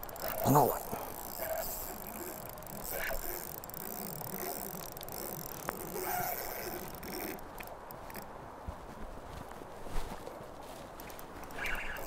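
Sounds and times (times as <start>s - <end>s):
fishing reel cranking: 0.0s - 8.3s, 11.4s - 12.0s.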